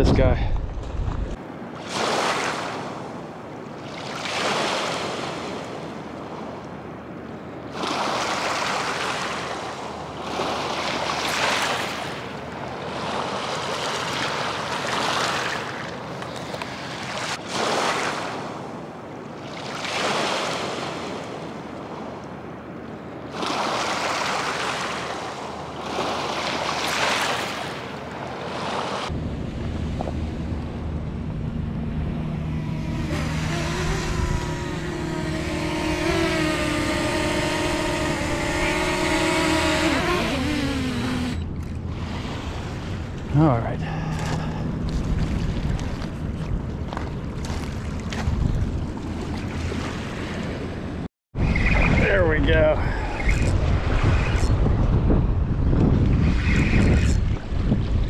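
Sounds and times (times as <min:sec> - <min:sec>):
waves washing on shore: 0:01.5 - 0:50.8
drone propellers humming: 0:29.1 - 0:46.9.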